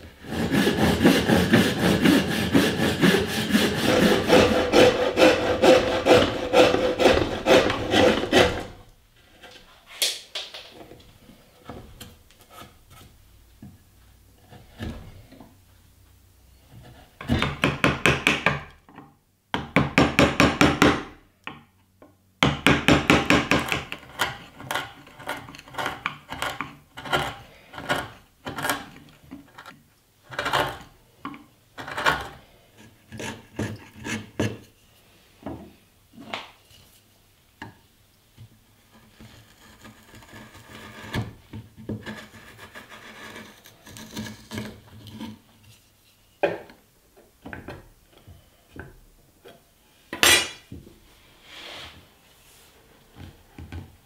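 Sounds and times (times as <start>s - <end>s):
chisel scraping wood: 0.2s - 9.8s, 23.1s - 34.8s, 38.8s - 46.0s
chisel tapping and chopping wood: 17.2s - 21.7s, 22.4s - 28.9s.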